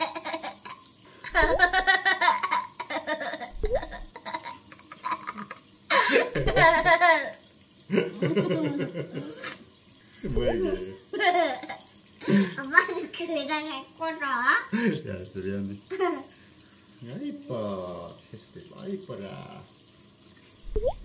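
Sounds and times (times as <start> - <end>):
young child giggling: 1.3 - 7.3, 7.9 - 9.5.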